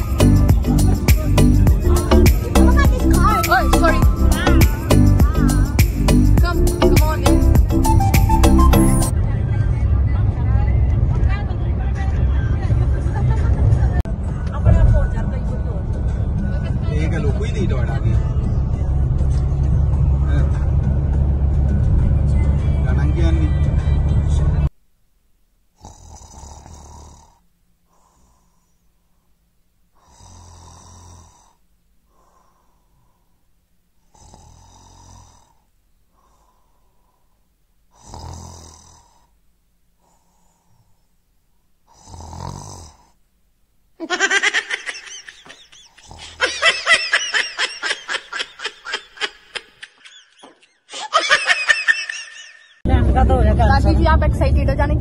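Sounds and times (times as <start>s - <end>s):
person snoring: 25.8s - 28.8s, 30.0s - 33.2s, 34.0s - 37.2s, 37.9s - 39.4s, 41.9s - 43.2s, 45.8s - 46.6s
loud bursts of laughter: 44.0s - 52.8s.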